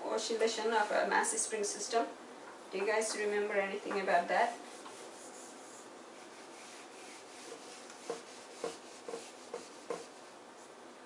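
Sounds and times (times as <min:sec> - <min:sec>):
eraser rubbing on whiteboard: 0:03.8 - 0:10.3.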